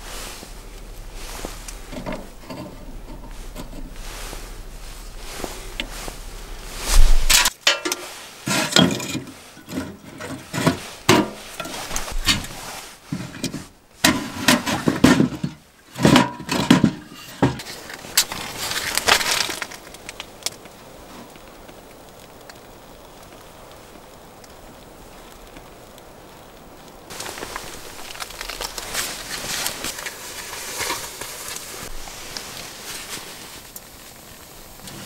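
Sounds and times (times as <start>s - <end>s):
firewood clattering in stove: 0.9s - 4.5s, 7.0s - 20.7s, 27.0s - 35.0s.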